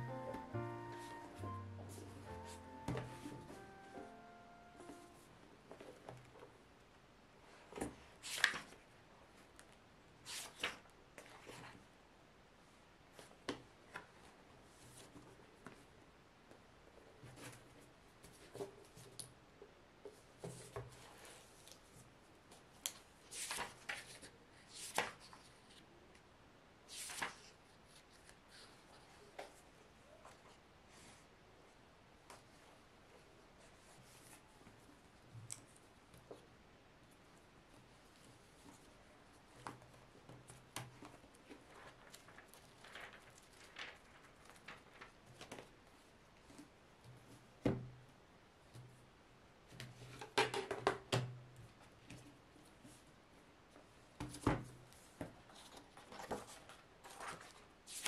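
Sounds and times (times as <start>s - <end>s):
book set down thump: 2.8s - 3.5s
book pages turning: 7.8s - 8.8s, 10.3s - 11.8s, 22.8s - 25.8s, 26.9s - 28.4s, 40.9s - 45.7s, 55.5s - 58.0s.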